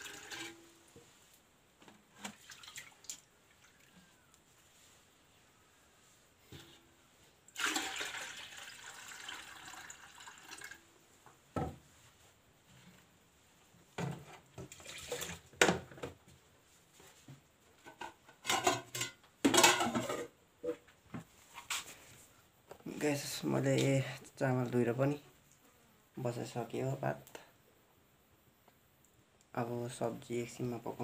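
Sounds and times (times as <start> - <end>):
water pouring into metal bowl: 0.0 - 0.6, 2.3 - 3.9, 7.5 - 10.8
water splashing and sloshing: 0.0 - 0.8, 2.1 - 4.0, 7.5 - 10.8, 14.6 - 15.6.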